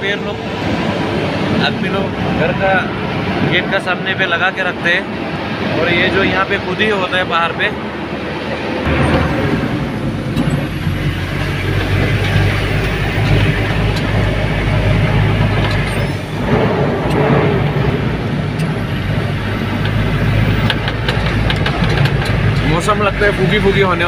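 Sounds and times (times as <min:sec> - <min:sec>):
road noise: 0:00.0 - 0:24.0
truck engine droning: 0:00.0 - 0:24.0
cab rattling: 0:08.9 - 0:24.0.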